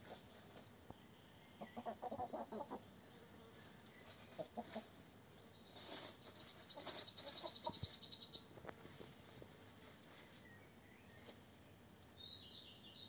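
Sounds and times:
hens clucking: 0:01.6 - 0:03.0, 0:03.6 - 0:05.1, 0:05.8 - 0:08.0.

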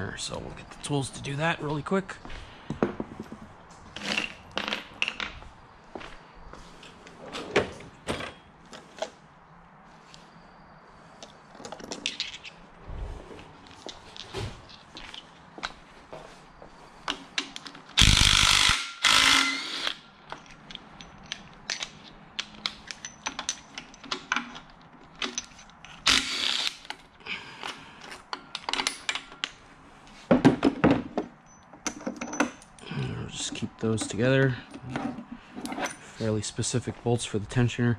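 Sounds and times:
socket ratchet clicking: 0:18.0 - 0:20.0.

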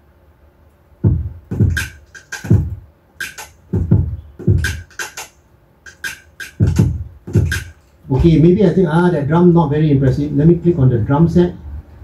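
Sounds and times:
deep electronic kick drums: 0:01.0 - 0:05.0, 0:06.0 - 0:08.4
hi-hat and clap hits: 0:01.0 - 0:08.0.

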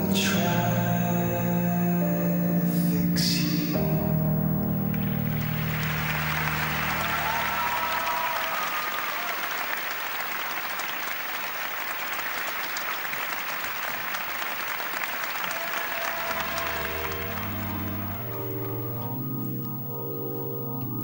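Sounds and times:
piano-led music: 0:00.0 - 0:11.0, 0:14.3 - 0:21.0
audience applauding: 0:04.8 - 0:19.2
whistles from audience: 0:05.3 - 0:18.8.

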